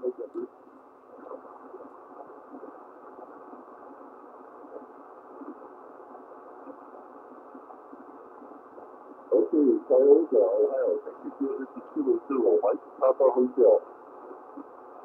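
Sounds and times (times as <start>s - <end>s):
radio static: 0.0s - 0.5s, 9.3s - 13.9s.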